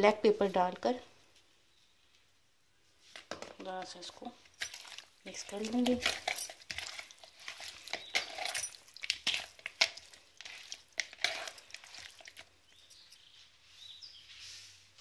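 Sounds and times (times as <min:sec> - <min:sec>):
wet squishing of raw chicken: 0:04.7 - 0:12.6.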